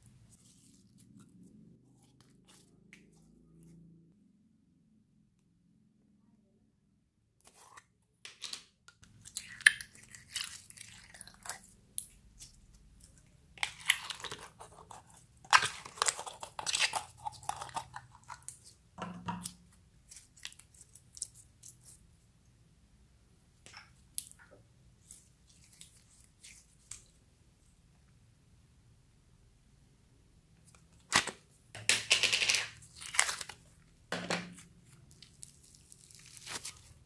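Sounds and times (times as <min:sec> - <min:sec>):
slime clicking and crackling: 0:09.1 - 0:18.7.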